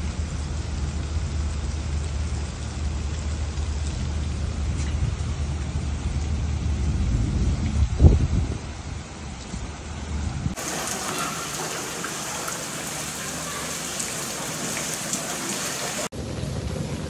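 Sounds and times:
heavy rain falling: 0:00.0 - 0:07.2, 0:10.5 - 0:16.1.

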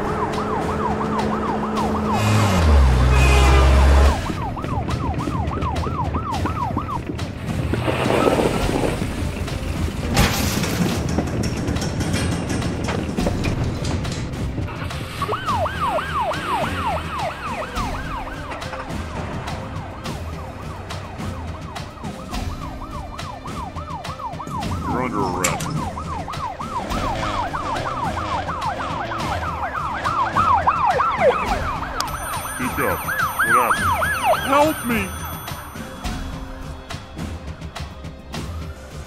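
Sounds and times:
police siren yelping: 0:00.0 - 0:07.4, 0:14.8 - 0:36.0.

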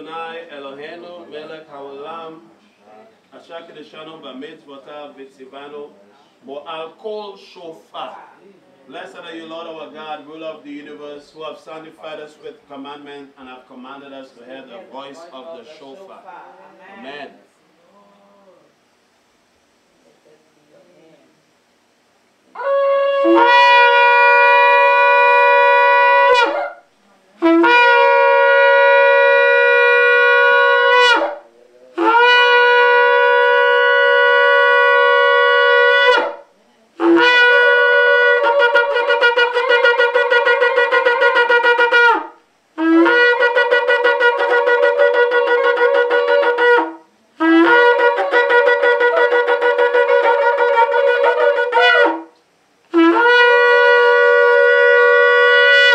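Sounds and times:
shofar blasts: 0:22.5 - 0:55.9.

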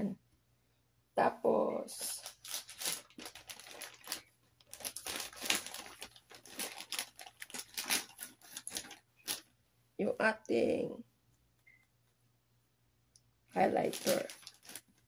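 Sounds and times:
rustling and clicking of items: 0:02.2 - 0:09.5, 0:13.8 - 0:15.0.

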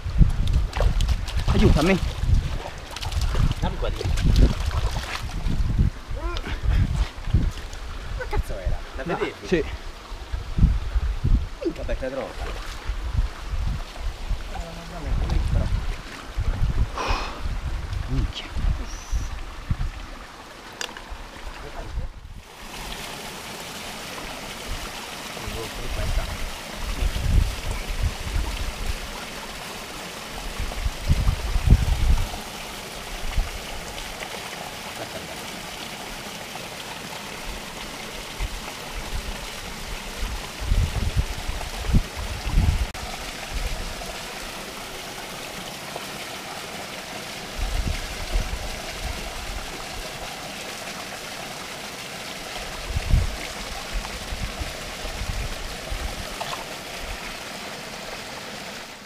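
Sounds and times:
stream running over rocks: 0:00.0 - 0:59.0.

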